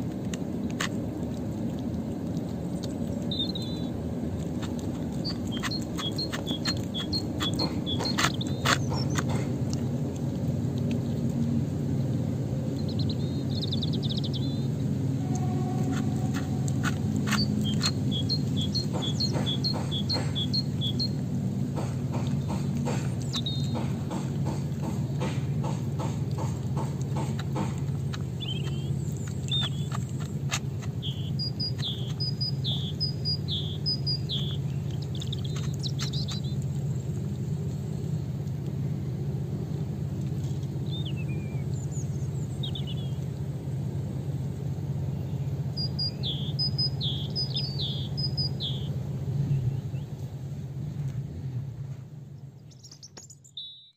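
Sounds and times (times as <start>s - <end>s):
cat crunching dry food: 0.0s - 12.7s
small birds chirping: 0.0s - 50.4s, 51.9s - 53.9s
steady low rumble: 0.0s - 53.6s.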